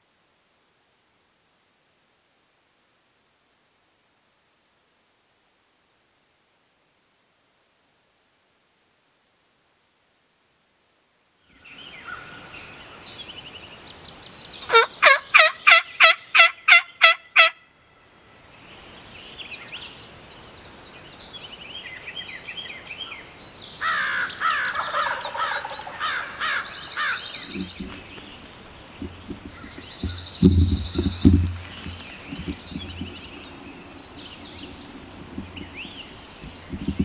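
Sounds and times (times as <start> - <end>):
songbirds singing: 11.5 - 37.0
turkey yelping: 14.7 - 17.6, 23.9 - 27.3.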